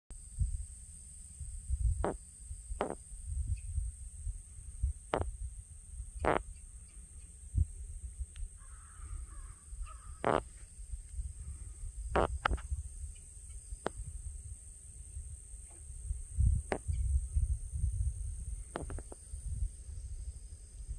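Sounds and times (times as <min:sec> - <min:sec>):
crow cawing: 0:08.6 - 0:10.4.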